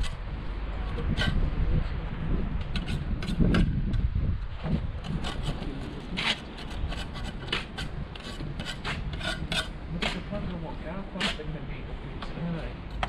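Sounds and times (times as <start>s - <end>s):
trowel scraping mortar: 2.6s - 3.7s, 5.0s - 10.3s.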